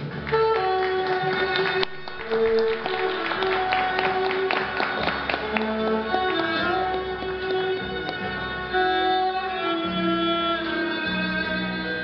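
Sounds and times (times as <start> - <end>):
low steady accompaniment: 0.0 - 12.0
violin playing slow melody: 0.2 - 12.0.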